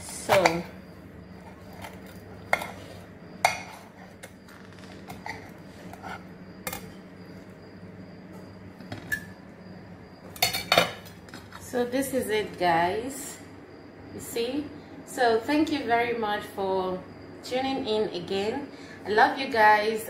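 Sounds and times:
cutlery scraping: 1.4 - 7.0, 10.4 - 11.6.

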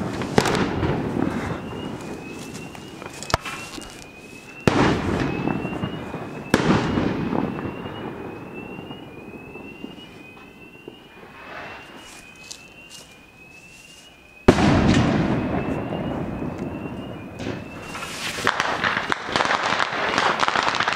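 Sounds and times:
fireworks cracking and banging: 0.0 - 12.9, 14.4 - 20.9
fire alarm tone: 0.0 - 20.9.

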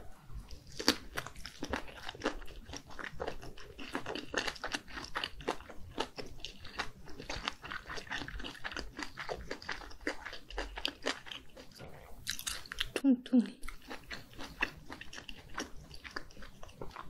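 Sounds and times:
close-miked wet chewing: 0.4 - 17.0.

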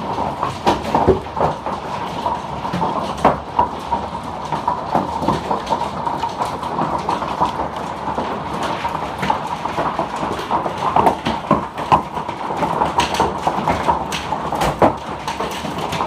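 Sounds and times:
hailstones pelting down: 0.0 - 16.0.

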